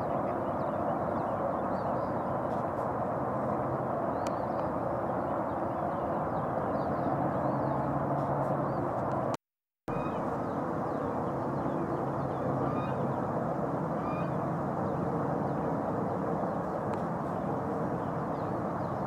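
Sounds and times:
faint high bird chirps: 9.9 - 11.0, 11.6 - 13.1.

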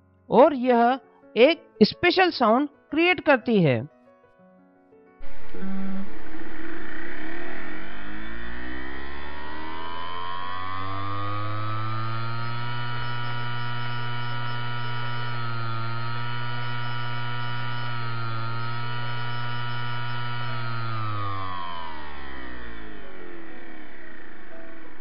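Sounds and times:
hard disk motor humming and whining: 5.2 - 25.0.

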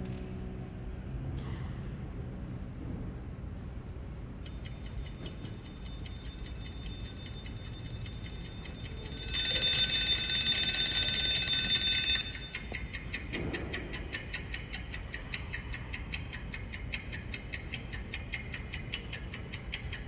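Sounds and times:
alarm clock ticking: 4.4 - 20.0
alarm bell ringing: 4.5 - 13.4.

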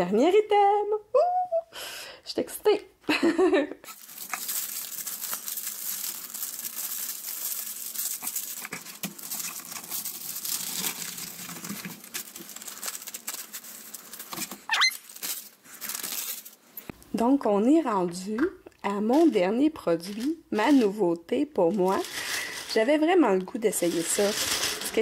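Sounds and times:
plastic zip bags crinkling: 3.9 - 16.7, 21.7 - 23.1, 23.7 - 25.0.

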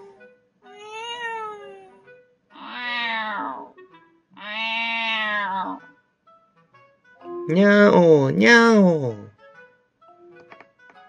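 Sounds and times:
cat meows through small speaker: 2.6 - 3.8, 4.4 - 5.8.

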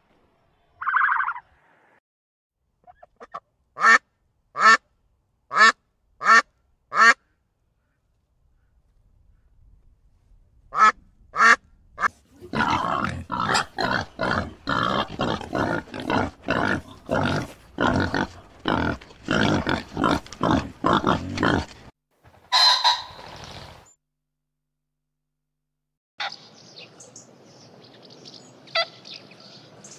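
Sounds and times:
ducks quacking: 2.9 - 4.0, 5.5 - 7.2, 10.8 - 21.6.

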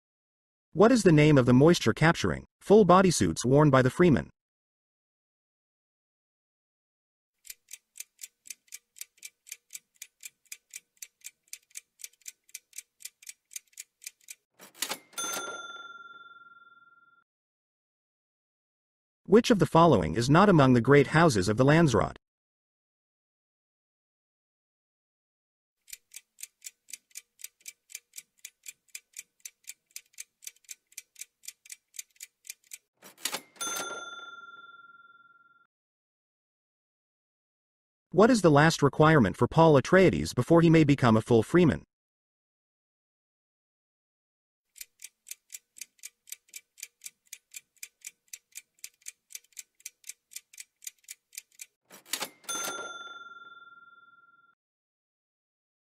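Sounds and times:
clock ticking: 7.4 - 15.4, 25.9 - 33.9, 44.8 - 52.8
bell-like ding: 15.0 - 17.0, 33.4 - 35.4, 52.3 - 54.5
bright chime ringing: 15.0 - 17.0, 33.6 - 35.2, 52.4 - 54.4.

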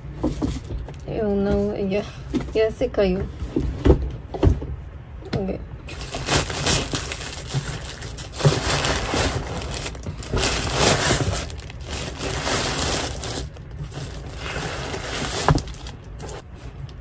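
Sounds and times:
packaging crinkling and rustling: 5.9 - 16.5.

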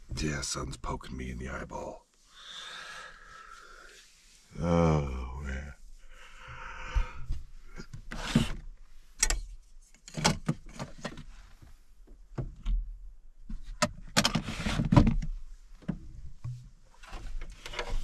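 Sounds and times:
plastic drawer sliding scrapes: 8.1 - 8.6, 14.2 - 15.1.

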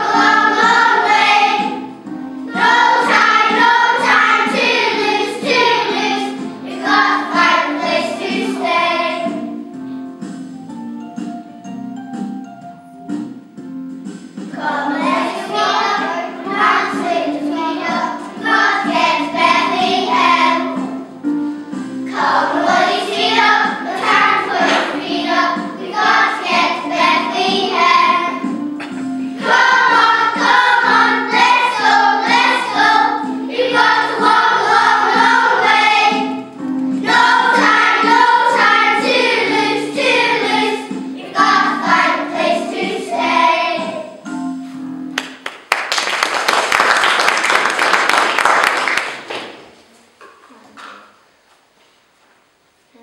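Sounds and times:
children's choir singing: 0.0 - 9.6, 14.5 - 44.5.

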